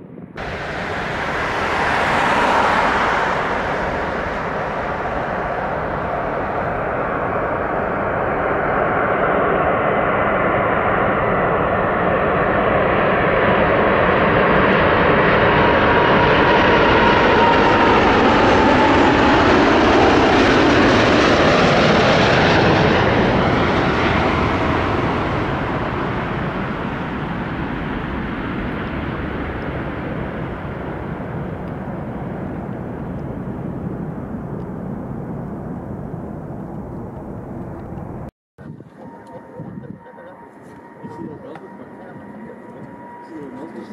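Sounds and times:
jet engines passing: 0:00.0 - 0:43.9.

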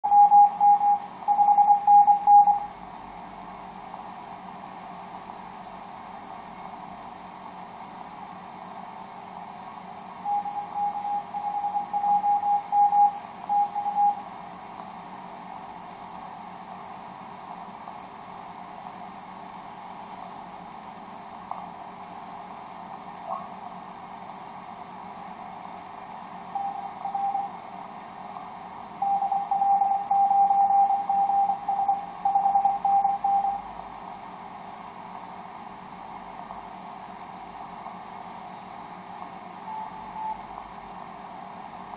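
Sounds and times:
morse code tone: 0:00.0 - 0:02.7, 0:10.2 - 0:14.2, 0:26.6 - 0:27.5, 0:29.0 - 0:33.6, 0:39.7 - 0:40.4.

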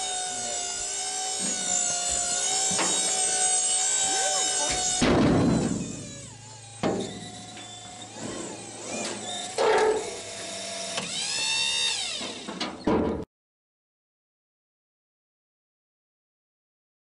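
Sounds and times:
electric pump motor humming: 0:00.0 - 0:12.6.

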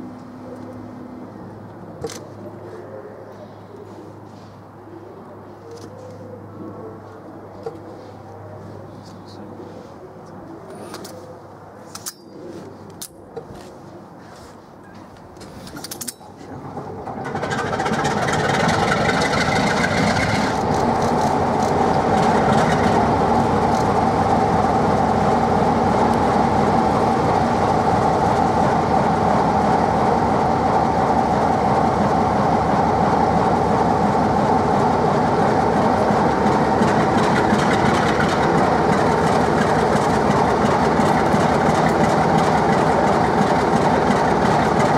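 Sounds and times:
engine whine: 0:00.0 - 0:14.2, 0:14.9 - 0:44.9
diesel locomotive engine starting: 0:15.4 - 0:44.9.

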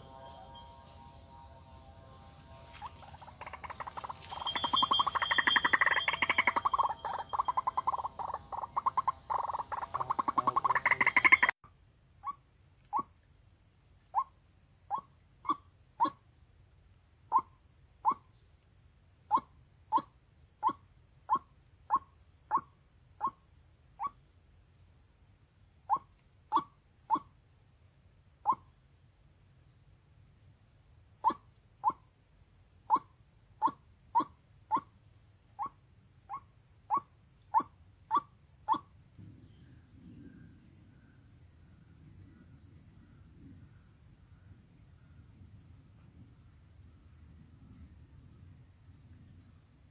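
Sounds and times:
faint insect hum: 0:00.0 - 0:49.9
waterhen calling: 0:02.6 - 0:11.5.

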